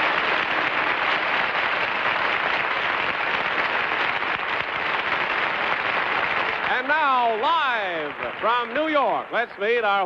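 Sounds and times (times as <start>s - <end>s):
studio audience applauding: 0.0s - 10.0s.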